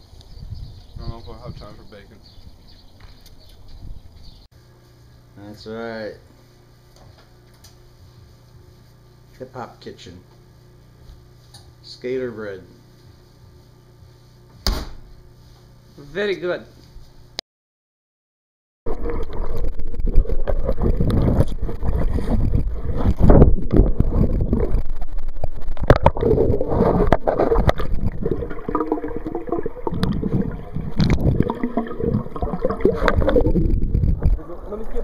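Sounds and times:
muffled underwater water rushing: 18.9 - 35.0.

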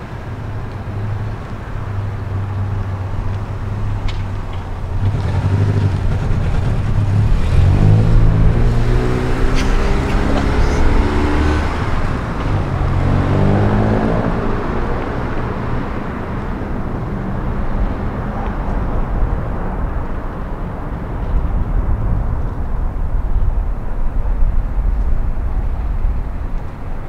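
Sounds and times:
car engine pulling away: 0.0 - 21.2
steady rushing noise: 0.0 - 27.0.

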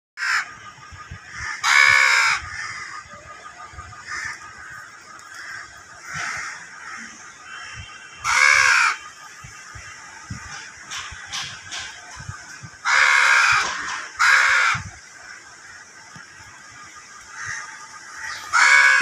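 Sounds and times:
young crow cawing: 1.3 - 3.0, 5.3 - 9.0, 12.8 - 14.9, 17.4 - 19.0.

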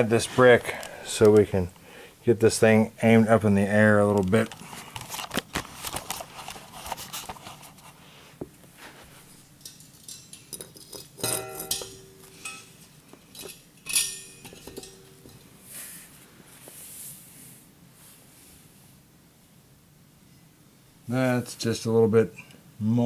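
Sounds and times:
ringing metallic clanks: 9.6 - 15.5.

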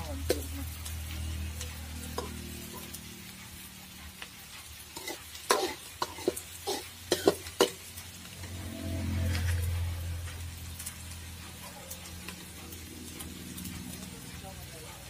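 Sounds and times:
onions sizzling in oil: 0.0 - 15.0
metal ladle scraping a pan: 4.7 - 9.8.

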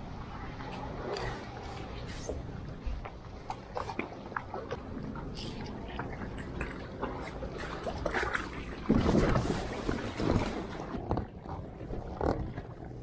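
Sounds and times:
water lapping: 0.0 - 13.0.

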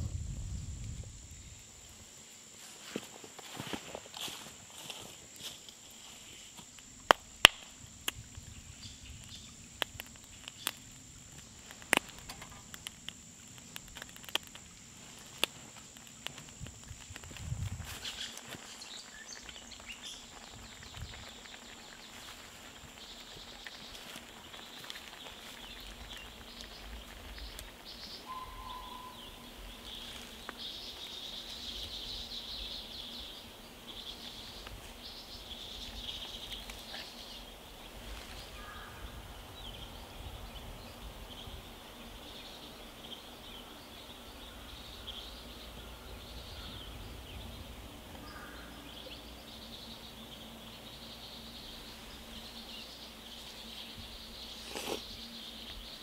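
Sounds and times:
faint low rumble: 0.0 - 1.8
small birds twittering: 4.2 - 56.0.

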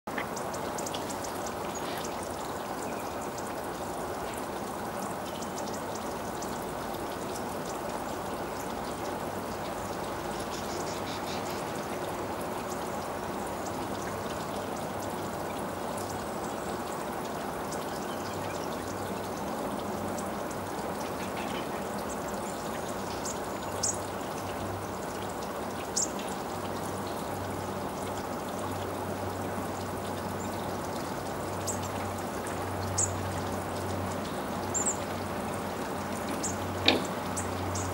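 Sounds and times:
running water rushing: 0.1 - 37.9.

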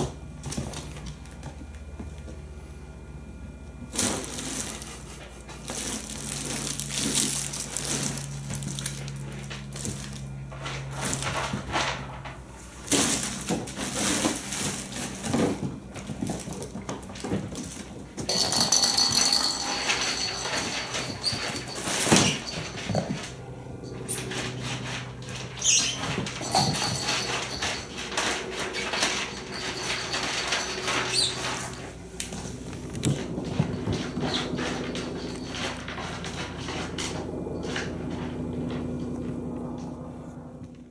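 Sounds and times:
paws scrabbling: 13.9 - 40.0.

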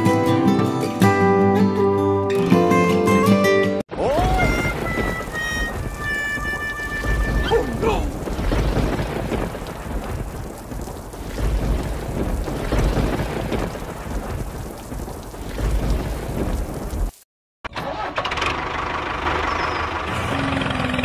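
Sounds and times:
rain falling: 4.0 - 17.2
rolling thunder: 4.2 - 17.1.

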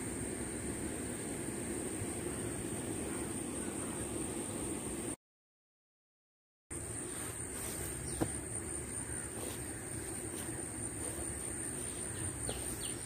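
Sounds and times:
high insect whine: 0.0 - 5.2, 6.7 - 13.0.

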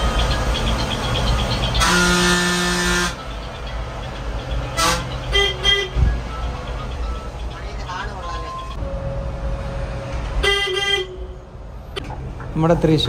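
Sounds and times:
bus engine rumble: 0.0 - 13.0
vehicle horn blast: 1.8 - 3.2, 4.8 - 6.1, 10.4 - 11.4.

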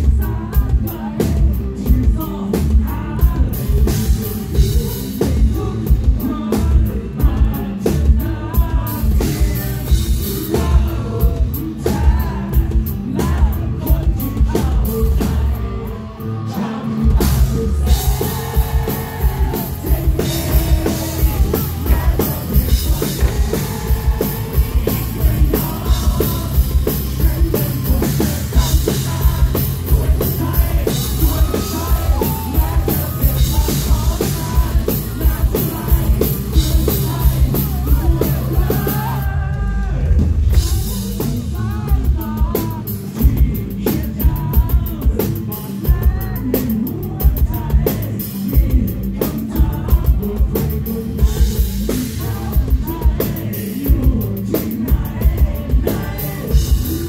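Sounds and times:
bass guitar: 0.0 - 57.0
distorted electric guitar: 0.0 - 57.0
drum kit beat: 0.0 - 57.0
man singing: 0.0 - 57.0.

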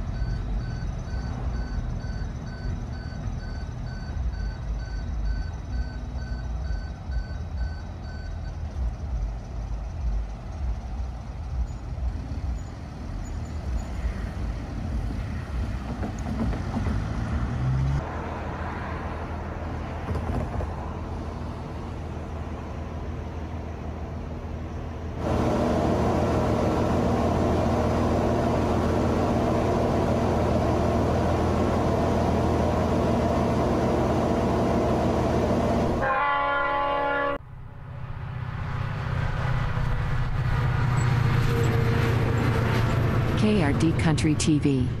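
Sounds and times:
engines humming: 0.0 - 45.0
train horn chord: 35.8 - 37.4.

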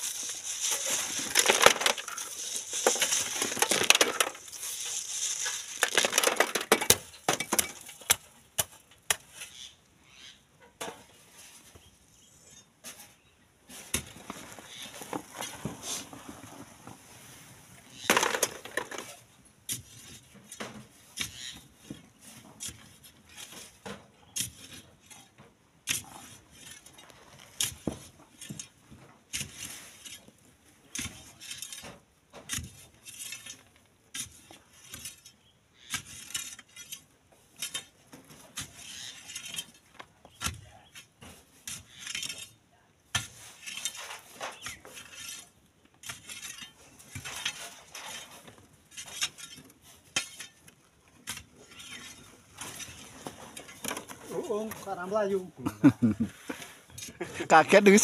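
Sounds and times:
loose material falling: 0.0 - 7.9
stones rattling in wire sieve: 0.0 - 8.1, 18.0 - 19.2.

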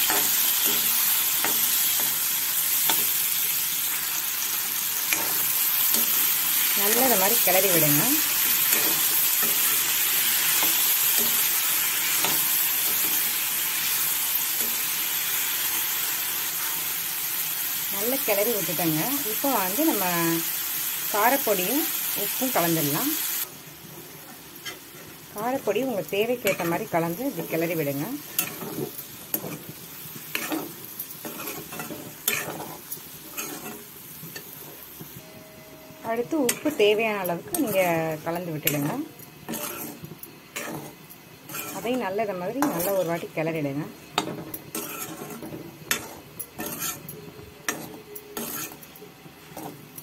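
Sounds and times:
food sizzling in hot oil: 0.0 - 50.0
ladle scraping pan: 39.5 - 42.0, 44.2 - 47.1, 47.7 - 48.9.

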